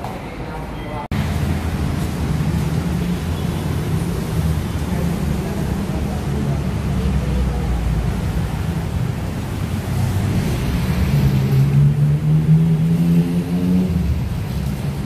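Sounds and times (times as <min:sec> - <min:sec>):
street traffic: 0:00.0 - 0:15.0
vehicle engine running nearby: 0:01.1 - 0:15.0.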